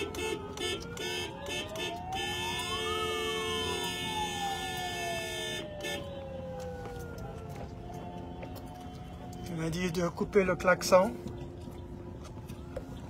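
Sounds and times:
car horns honking: 0.0s - 4.2s, 4.9s - 6.1s
siren wailing: 0.0s - 13.0s.

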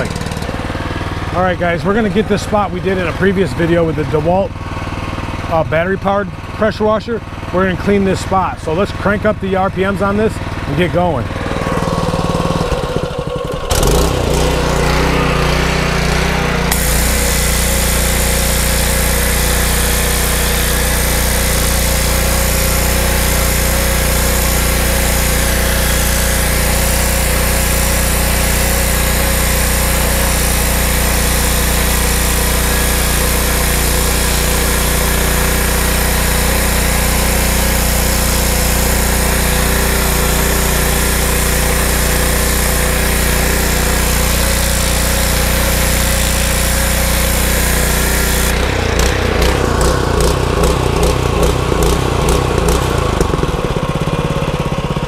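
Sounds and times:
pressure washer engine running: 0.0s - 55.0s
water jet hissing on concrete: 13.8s - 53.4s.

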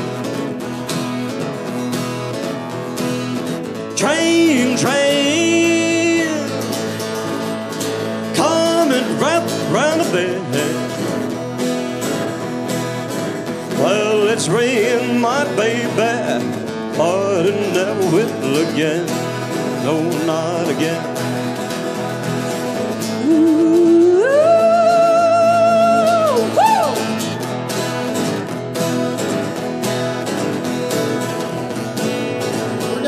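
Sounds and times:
acoustic guitars strummed: 0.0s - 33.0s
man singing: 3.9s - 6.9s, 8.2s - 11.2s, 13.7s - 21.2s, 23.1s - 27.2s.

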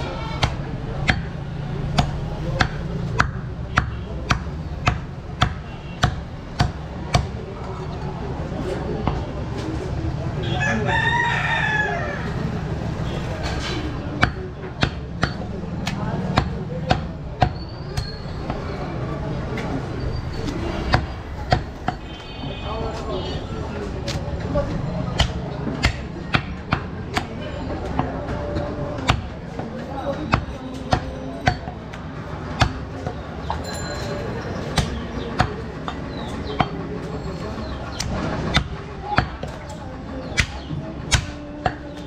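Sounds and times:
cleaver chopping meat on wood: 0.4s - 7.4s, 14.0s - 18.6s, 20.8s - 22.0s, 25.0s - 31.8s, 32.4s - 33.2s, 34.7s - 36.8s, 37.9s - 39.6s, 40.2s - 42.0s.

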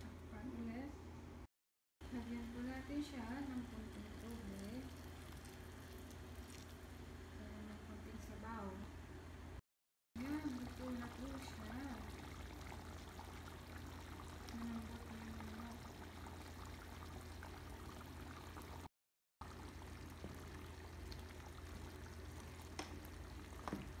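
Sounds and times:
stew bubbling and popping: 3.4s - 7.3s, 10.2s - 24.0s.

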